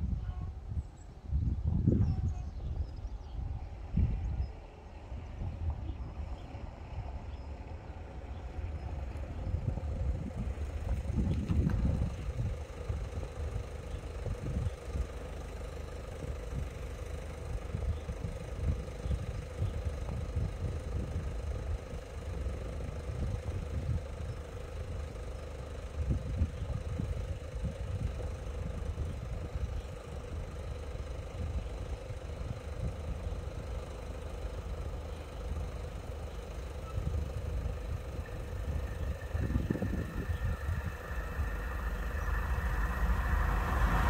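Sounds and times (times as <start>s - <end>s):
wind buffeting microphone: 0.0s - 15.2s, 36.8s - 44.0s
faint steady hum: 25.8s - 44.0s.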